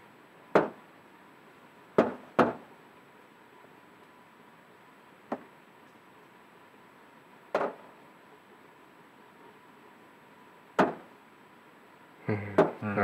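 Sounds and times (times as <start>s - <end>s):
sharp knocks: 0.5s - 0.8s, 2.0s - 2.6s, 10.8s - 11.1s.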